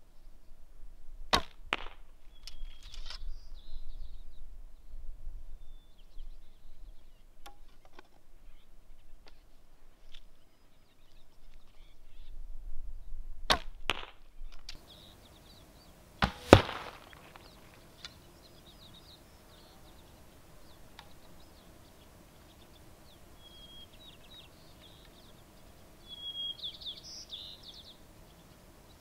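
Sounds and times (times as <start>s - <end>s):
arrow striking target: 1.3s - 2.0s, 13.5s - 14.1s, 16.2s - 17.6s
bowstring crack: 16.2s - 18.2s.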